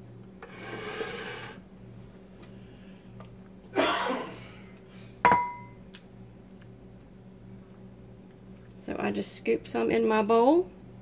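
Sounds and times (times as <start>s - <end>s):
dish scraping on countertop: 0.4s - 1.6s
dish clinking: 5.3s - 5.7s.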